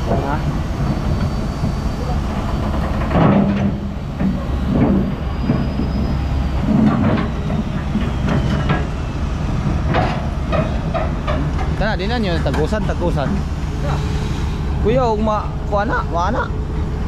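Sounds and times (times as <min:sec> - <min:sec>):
excavator diesel engine running: 0:00.0 - 0:17.0
metal clanks and scrapes: 0:02.5 - 0:08.8.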